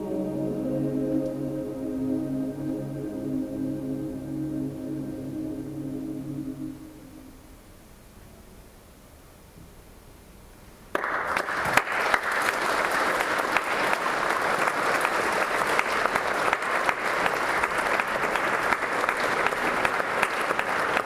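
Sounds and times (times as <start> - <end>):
crowd applauding: 10.9 - 21.0.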